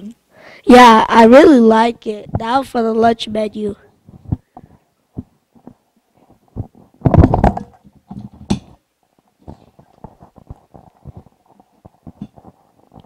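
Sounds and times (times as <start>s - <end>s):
microphone handling thumps: 2.2s - 2.7s, 4.0s - 8.8s, 9.4s - 13.0s.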